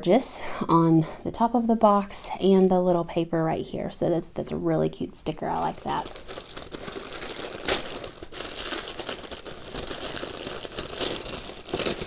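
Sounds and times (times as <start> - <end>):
tissue paper rustling: 5.5 - 12.0.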